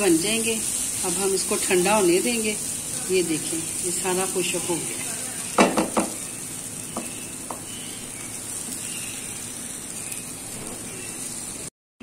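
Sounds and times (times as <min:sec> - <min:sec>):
batter sizzling in frying pan: 0:00.0 - 0:11.7
spatula taps: 0:05.6 - 0:06.2, 0:06.9 - 0:07.7.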